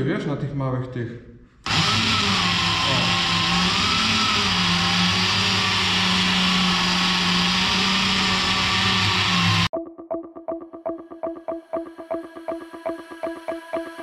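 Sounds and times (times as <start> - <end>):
angle grinder motor whine: 1.7 - 9.7.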